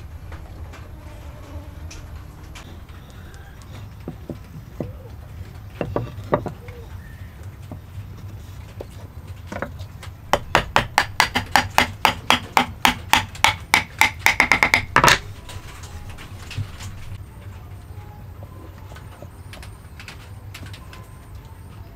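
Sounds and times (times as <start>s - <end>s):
hammer knocking on wood: 10.3s - 15.2s.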